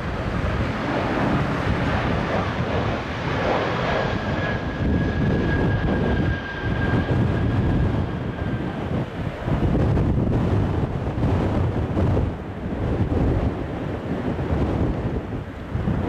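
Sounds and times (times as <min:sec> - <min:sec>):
thin high engine whine: 0:00.0 - 0:10.3
jet engines rumbling: 0:00.0 - 0:16.0
wind buffeting microphone: 0:00.0 - 0:16.0.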